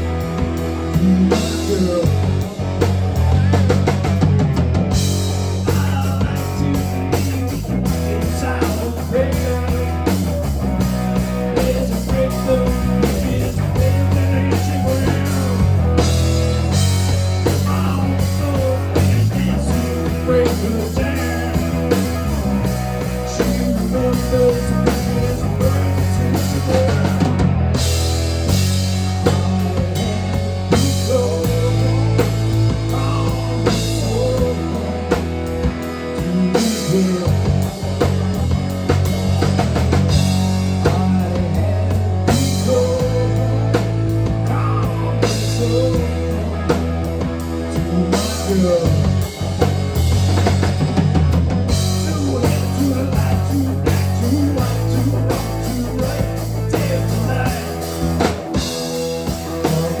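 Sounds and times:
bending guitar lead: 0.0s - 60.0s
rock band playing: 0.0s - 60.0s.

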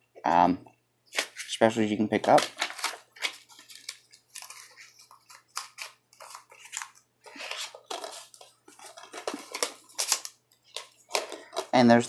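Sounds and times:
paper rustle: 2.1s - 11.7s.

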